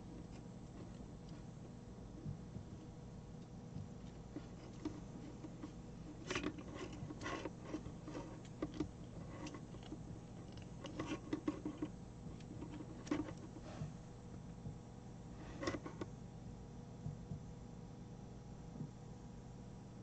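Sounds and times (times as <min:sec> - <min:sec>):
fingers untwisting thin wires: 0:00.0 - 0:13.8.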